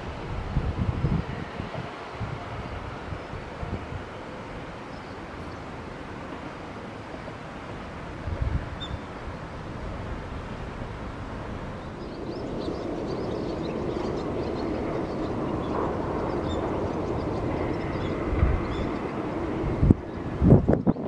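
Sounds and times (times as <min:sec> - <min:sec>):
electric train approaching: 0:00.0 - 0:20.8
wind buffeting microphone: 0:00.0 - 0:21.0
small birds chirping: 0:11.8 - 0:19.2.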